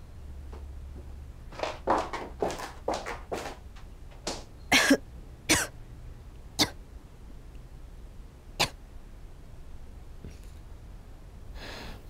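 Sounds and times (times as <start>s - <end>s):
person coughing: 4.7s - 5.7s.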